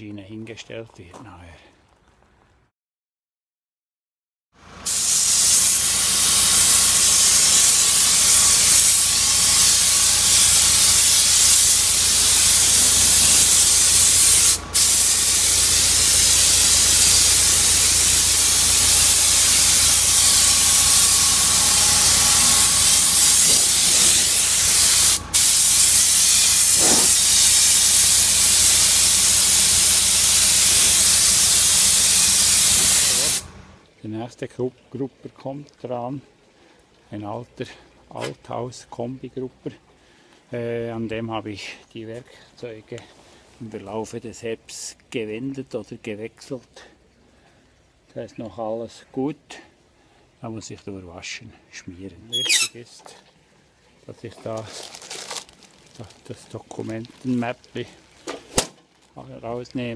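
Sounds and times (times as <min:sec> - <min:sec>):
pressure washer jet hissing: 0:04.8 - 0:33.8, 0:52.4 - 0:52.7.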